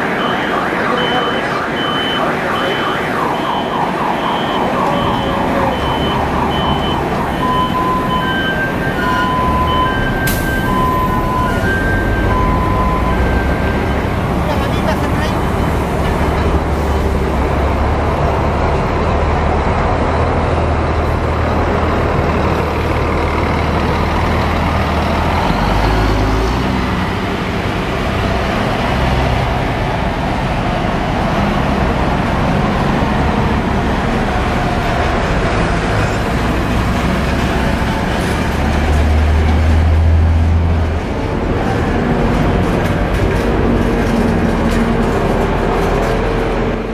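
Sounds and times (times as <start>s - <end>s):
city traffic noise: 0.0s - 46.9s
diesel coach engine drone: 0.0s - 46.9s
heavy vehicle engine hum: 0.0s - 46.9s.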